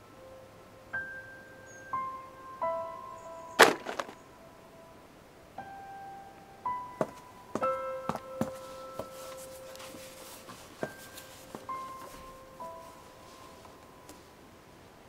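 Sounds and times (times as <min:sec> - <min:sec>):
slow piano notes: 0:00.0 - 0:03.6, 0:04.2 - 0:14.8
loud sharp thunk: 0:03.6 - 0:04.2.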